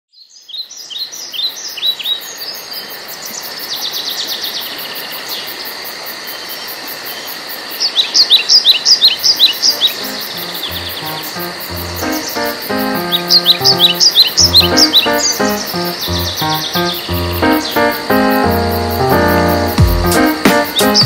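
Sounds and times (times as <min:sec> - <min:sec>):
songbirds singing and calling: 0:00.1 - 0:04.7, 0:07.2 - 0:18.6
steady background hiss: 0:00.7 - 0:21.0
sharp down-slurred bird chirps: 0:08.3 - 0:19.6.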